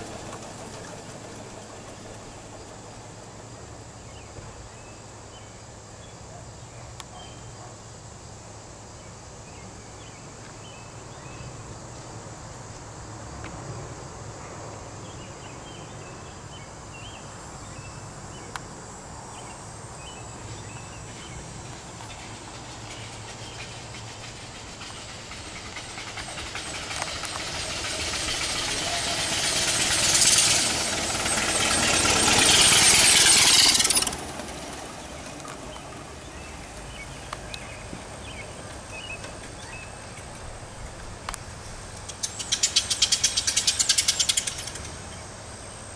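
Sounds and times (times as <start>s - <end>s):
steam motorcycle passing: 0.0s - 5.3s, 10.9s - 45.9s
steam exhaust hiss: 9.7s - 45.9s.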